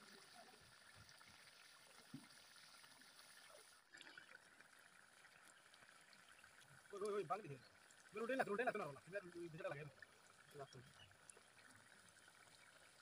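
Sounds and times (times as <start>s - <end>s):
curry bubbling in a pan: 0.0s - 13.0s.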